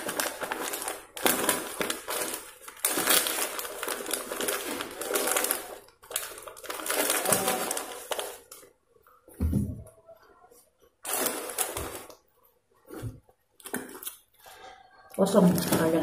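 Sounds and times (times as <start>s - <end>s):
foil snack packet crinkling: 0.0s - 8.7s, 11.0s - 12.2s.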